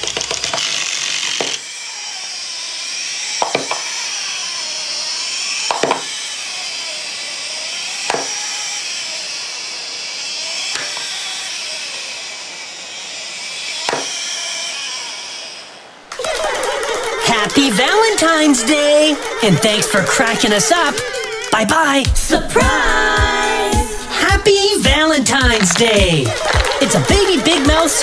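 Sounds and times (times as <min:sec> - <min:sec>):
clockwork toy gears whirring: 0:00.0 - 0:21.8, 0:22.7 - 0:28.0
toy tipping over and clacking: 0:25.2 - 0:28.0.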